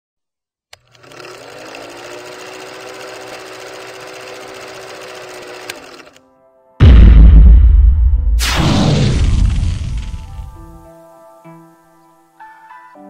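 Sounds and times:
film projector clatter: 0.8s - 6.2s.

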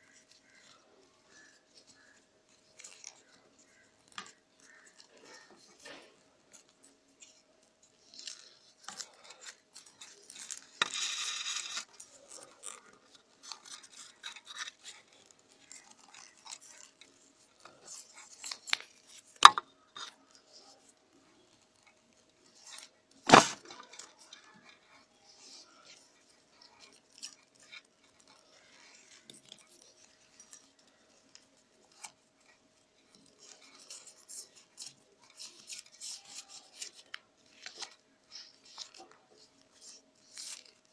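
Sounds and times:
scratchy rub: 0.0s - 19.4s, 20.0s - 40.9s.

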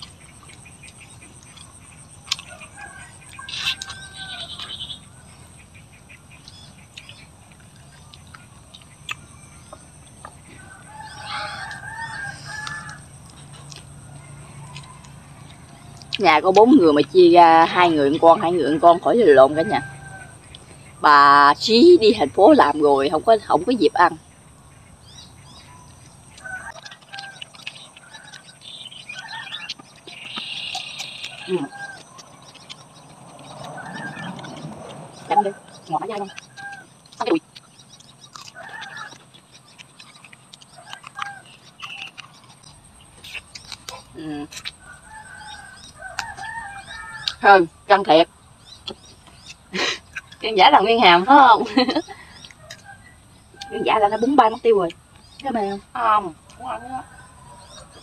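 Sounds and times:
chicken clucking and calling: 0.0s - 48.2s, 48.8s - 55.2s, 56.2s - 58.0s
rooster crowing: 2.3s - 5.2s, 10.5s - 16.1s, 18.5s - 21.3s, 25.6s - 29.8s, 44.8s - 47.6s, 56.4s - 58.0s
higher chirps: 23.6s - 47.9s.

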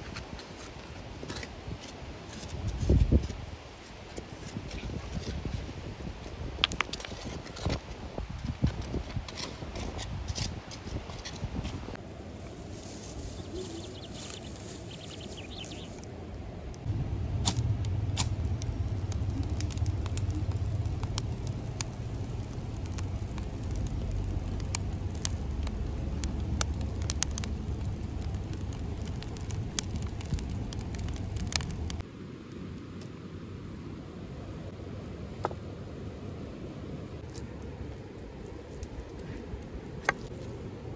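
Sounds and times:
straw fire crackling: 6.6s - 7.2s, 12.0s - 33.8s, 37.2s - 40.9s.

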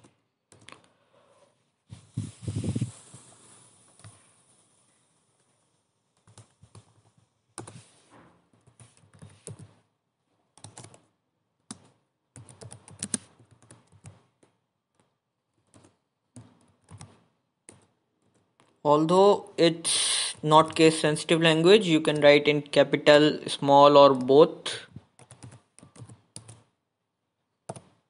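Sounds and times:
computer keyboard typing: 0.0s - 0.9s, 6.2s - 7.8s, 8.6s - 9.8s, 10.6s - 18.7s, 25.0s - 26.8s, 27.6s - 28.0s.

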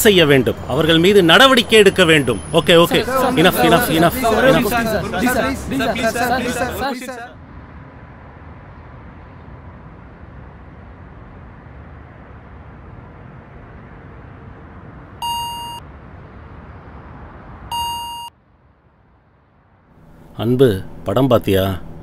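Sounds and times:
lift cabin rushing hum: 0.0s - 7.4s, 20.0s - 22.0s
lift arrival beep: 15.2s - 15.8s, 17.7s - 18.3s.

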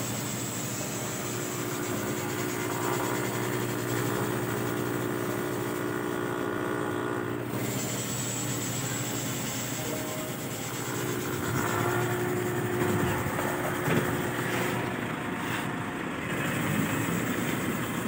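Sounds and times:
air conditioning blower hiss: 0.0s - 18.0s
car cabin hum: 11.1s - 16.0s.

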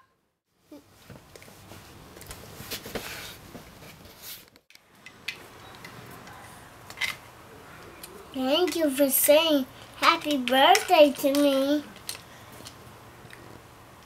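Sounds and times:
plastic toys clicking in hands: 10.0s - 13.4s.

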